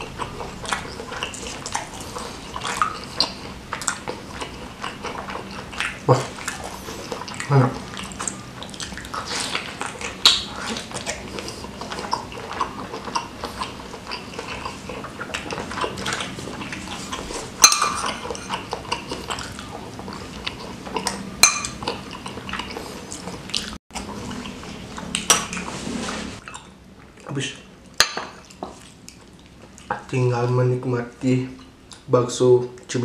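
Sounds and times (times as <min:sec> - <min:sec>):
chewing and wet mouth sounds: 0:00.0 - 0:30.3, 0:31.4 - 0:33.0
metal cutlery clinking on bowls: 0:17.6 - 0:19.1, 0:21.4 - 0:22.0.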